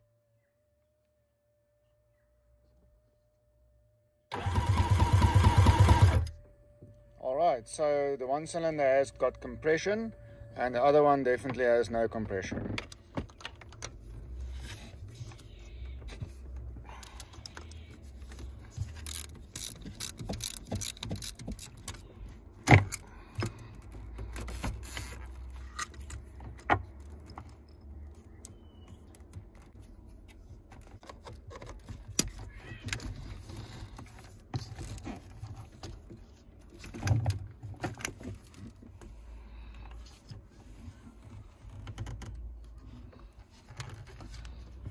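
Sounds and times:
metallic and plastic rattles: 17.1s - 22.0s.

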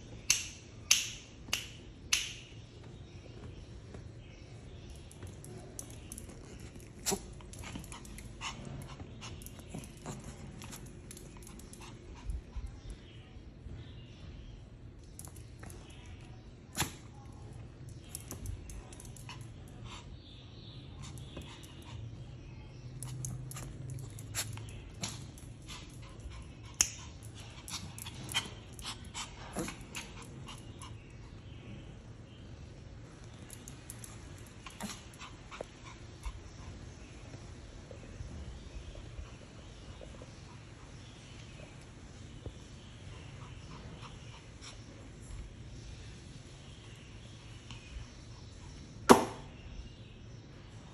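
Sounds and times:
dog panting: 6.8s - 12.8s.

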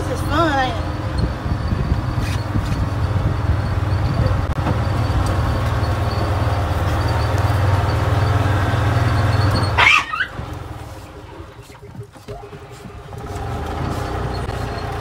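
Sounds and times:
golf cart motor droning: 0.0s - 15.0s.

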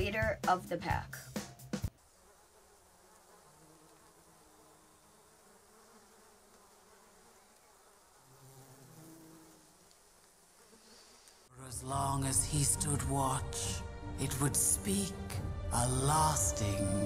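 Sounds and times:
flies buzzing: 1.8s - 11.5s.

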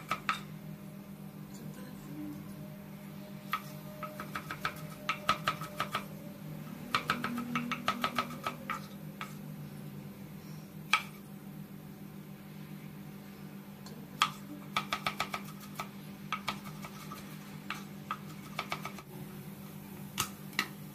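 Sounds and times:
low hum: 0.4s - 13.6s
knife chopping on cutting board: 14.2s - 19.0s.

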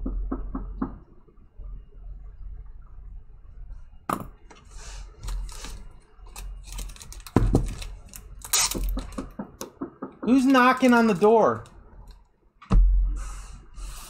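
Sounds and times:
plastic wrapping crinkling: 5.2s - 9.2s.

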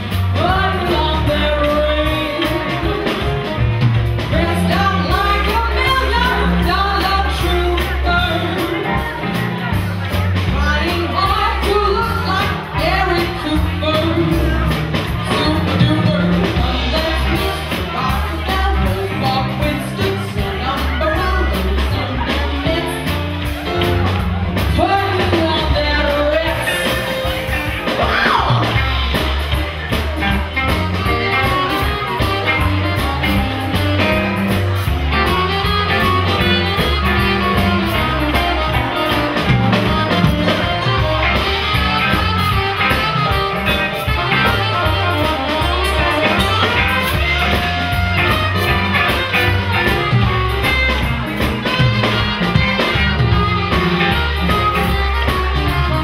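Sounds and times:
drums: 0.0s - 56.0s
electric guitar: 0.0s - 56.0s
saxophone: 0.0s - 56.0s
upright double bass: 0.0s - 56.0s
woman singing: 0.1s - 3.3s, 4.2s - 9.3s, 10.4s - 23.6s, 24.6s - 27.3s.

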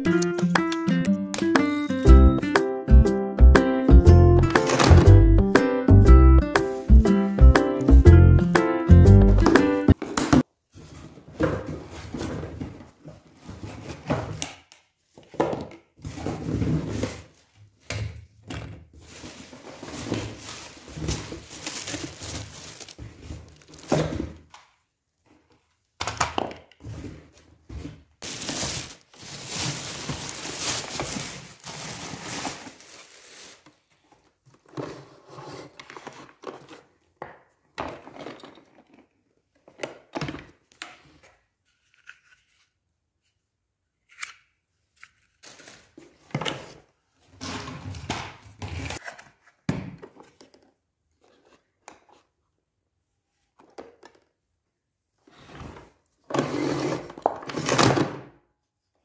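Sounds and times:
plastic wrapping crinkling and tearing: 19.1s - 24.0s, 28.2s - 34.0s.

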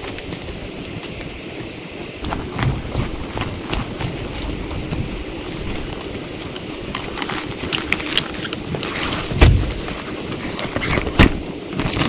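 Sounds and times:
loud low thump: 2.2s - 5.9s
heavy rain on a tent: 6.9s - 12.0s.

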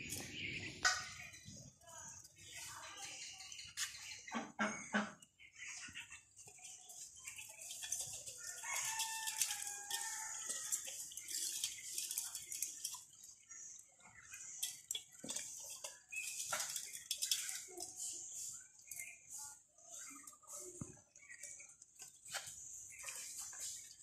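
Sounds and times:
ducks pecking at bowls: 0.0s - 24.0s
rooster crowing: 8.4s - 10.6s.

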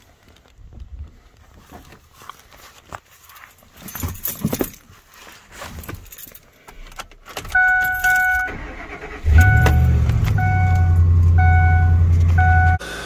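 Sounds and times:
truck warning chime dinging: 7.5s - 12.9s.

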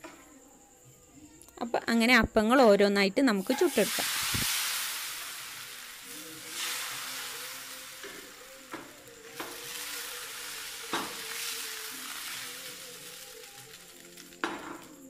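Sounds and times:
batter sizzling in a frying pan: 3.4s - 15.0s.

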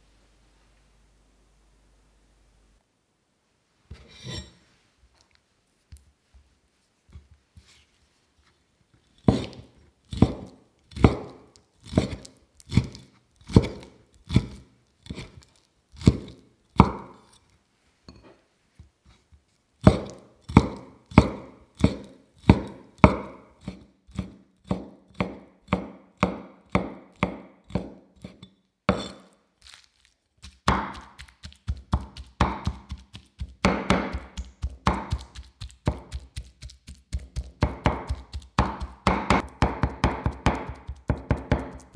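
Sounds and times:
cleaver chopping on wooden board: 9.3s - 15.3s, 16.0s - 17.1s, 19.8s - 23.4s, 24.2s - 28.0s, 30.7s - 36.5s, 37.1s - 41.9s.

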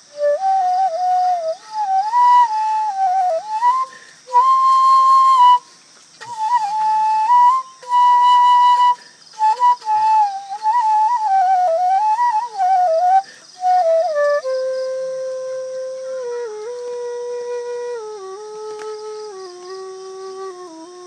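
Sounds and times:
solo flute melody: 0.0s - 21.0s.

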